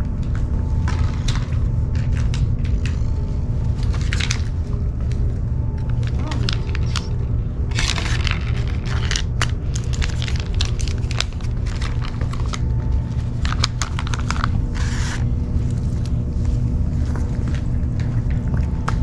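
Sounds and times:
steady low rumble: 0:00.0 - 0:19.0
plastic pouch crinkling and tearing: 0:06.0 - 0:07.1, 0:07.7 - 0:15.2.

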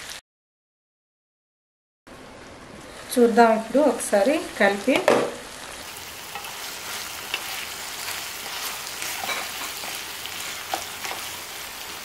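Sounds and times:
chicken sizzling in a pan: 0:02.9 - 0:12.0
wooden spatula scraping: 0:06.3 - 0:12.0.

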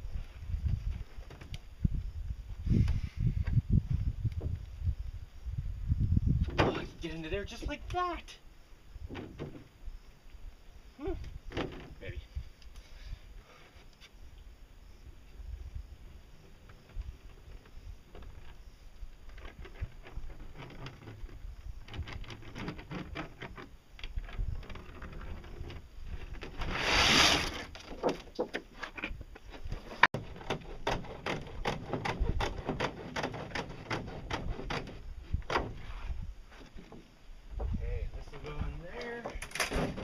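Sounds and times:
fiberglass sheet rustling: 0:24.3 - 0:28.5.

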